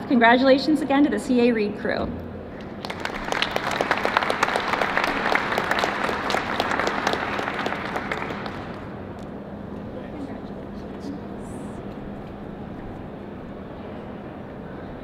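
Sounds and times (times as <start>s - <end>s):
audience applauding: 2.6s - 9.0s.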